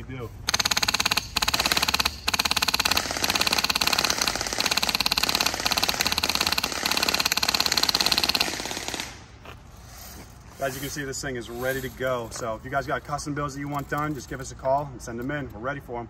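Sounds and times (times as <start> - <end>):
airsoft gun firing full-auto: 0.5 - 9.2.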